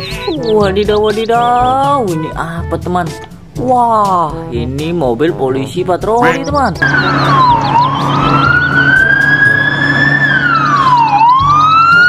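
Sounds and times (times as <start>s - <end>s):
fast sweeping siren: 6.2s - 12.0s
police siren wailing: 6.2s - 12.0s.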